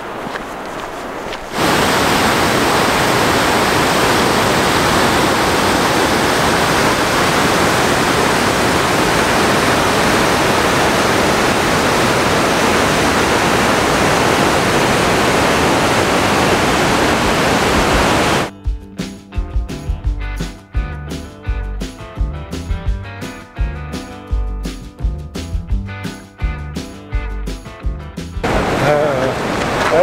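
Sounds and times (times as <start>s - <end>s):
waterfall rushing: 0.0s - 18.5s, 28.4s - 30.0s.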